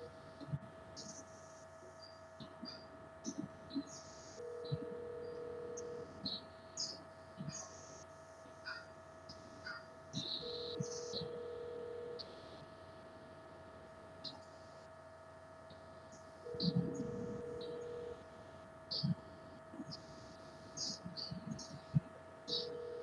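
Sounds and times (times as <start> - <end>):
steady electrical hum: 0.0 - 23.0
low electronic tone: 10.2 - 12.5, 16.4 - 19.2.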